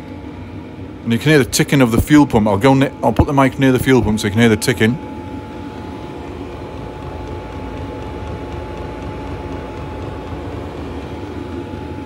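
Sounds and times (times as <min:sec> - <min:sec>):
heater blower humming with whine: 0:00.0 - 0:12.0
fuel pump ticking: 0:06.4 - 0:11.6.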